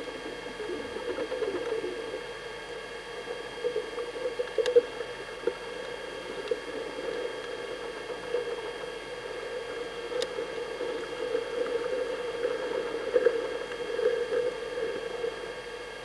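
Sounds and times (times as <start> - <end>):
camcorder tape mechanism whine: 0.0 - 16.0
faint clicks: 3.7 - 7.6, 10.1 - 14.5.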